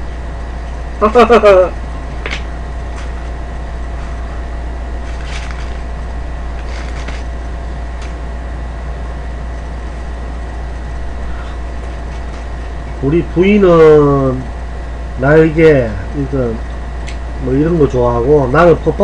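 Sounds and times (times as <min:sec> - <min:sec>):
low background hum: 0:00.0 - 0:19.0
faint crunching clicks: 0:17.0 - 0:17.2.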